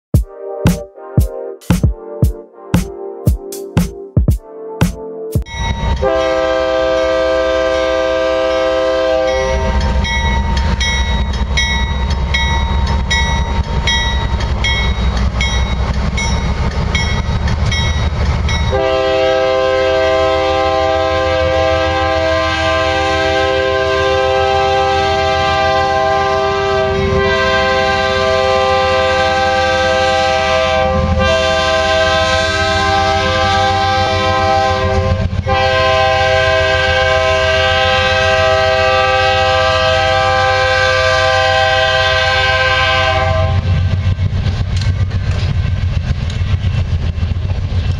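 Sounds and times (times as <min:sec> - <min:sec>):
locomotive air horn: 0:05.8 - 0:10.1, 0:18.7 - 0:43.8.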